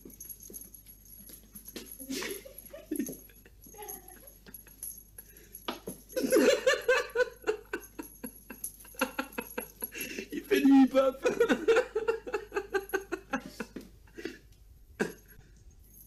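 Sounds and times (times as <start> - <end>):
person laughing: 2.0 - 4.8, 6.2 - 14.3.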